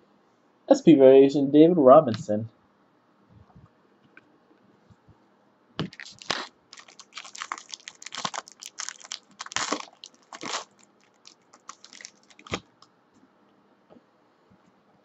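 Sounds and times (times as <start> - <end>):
plastic wrapper crackling: 5.8 - 12.8.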